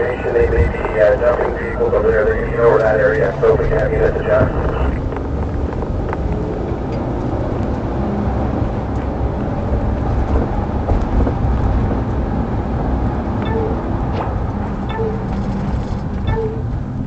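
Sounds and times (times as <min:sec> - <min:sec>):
road and engine rumble inside car: 0:00.0 - 0:17.0.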